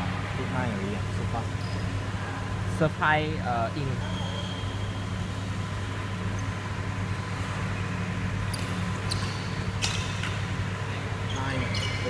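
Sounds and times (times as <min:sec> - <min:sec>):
steady low hum: 0:00.0 - 0:12.0
rackets hitting shuttlecock: 0:08.6 - 0:10.6.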